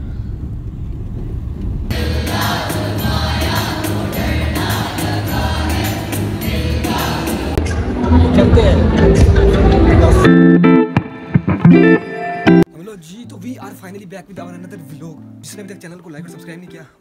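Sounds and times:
students singing together: 1.9 - 10.2.

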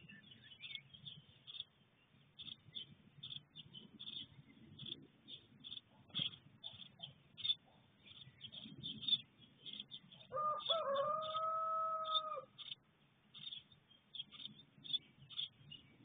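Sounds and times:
high bird chirps: 2.4 - 16.0
rooster crowing: 10.3 - 12.5.

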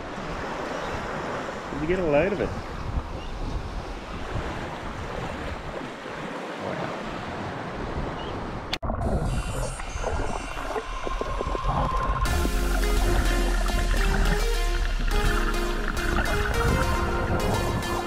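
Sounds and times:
small waves lapping on sand: 0.0 - 8.2
wind buffeting the microphone: 2.4 - 9.4.

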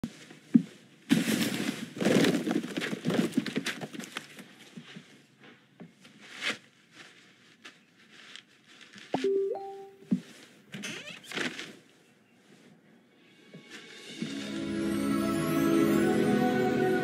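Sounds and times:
paper and twine rustling: 6.0 - 9.2.

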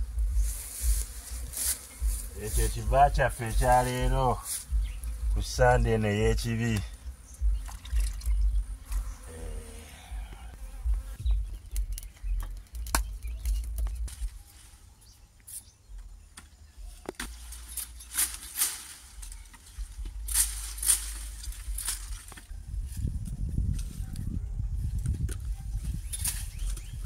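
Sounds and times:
wind rumble on microphone: 0.0 - 14.4, 19.2 - 27.0
swishing leaves: 0.3 - 2.8, 17.3 - 23.0
machete chopping: 16.3 - 17.4.

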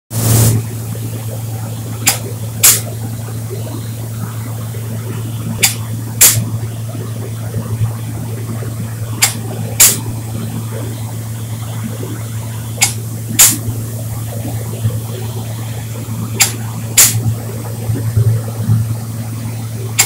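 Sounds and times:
steady low hum: 0.1 - 20.0
spray gun hissing: 0.2 - 0.6, 2.0 - 2.9, 5.6 - 6.5, 9.1 - 10.3, 12.8 - 14.3, 16.4 - 17.3.

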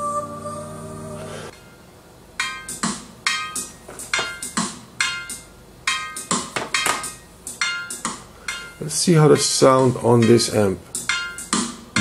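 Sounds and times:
ringing percussion music: 2.4 - 12.0.

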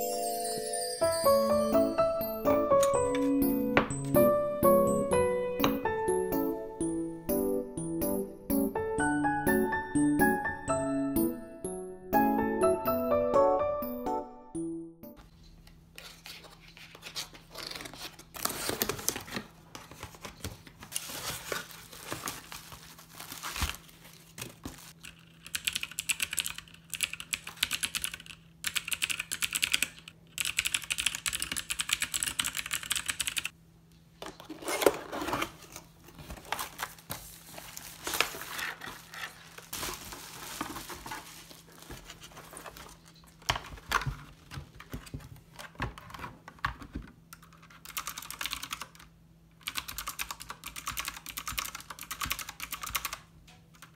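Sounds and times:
packaging rustling and crinkling: 16.0 - 25.0, 34.2 - 46.4
rapid typing on keyboard: 25.0 - 33.5, 47.3 - 53.9.

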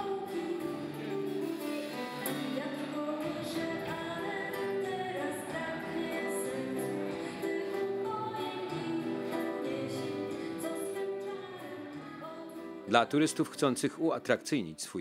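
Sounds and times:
woman singing: 0.0 - 1.5, 2.2 - 12.9
live band playing: 0.5 - 2.8.

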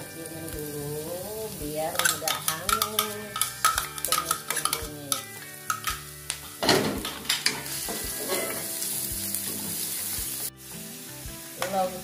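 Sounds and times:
shallots sizzling in oil: 0.0 - 12.0
metal spoon scraping board: 8.0 - 8.7.

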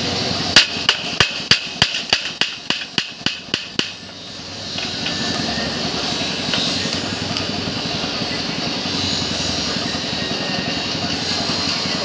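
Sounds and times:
small hammer striking metal: 0.6 - 4.1.

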